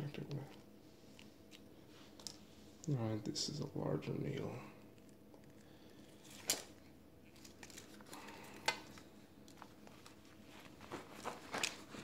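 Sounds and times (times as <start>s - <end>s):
packaging crinkling: 5.0s - 12.0s.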